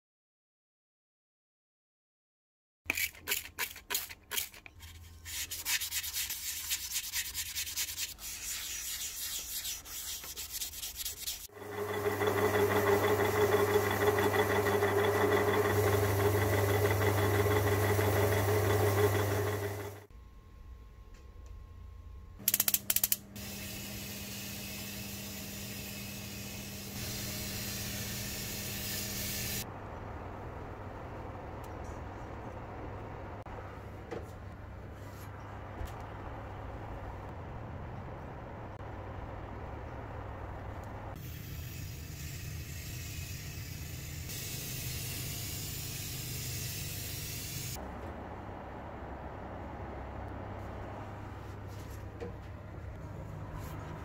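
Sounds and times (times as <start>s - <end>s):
powder coating gun spraying: 22.5s - 29.6s, 41.2s - 47.8s.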